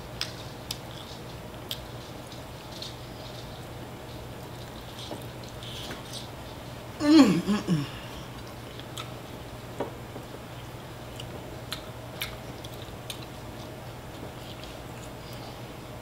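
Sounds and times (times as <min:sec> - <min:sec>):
steady low hum: 0:00.0 - 0:16.0
person chewing: 0:01.7 - 0:01.9, 0:07.4 - 0:09.2, 0:11.1 - 0:15.6.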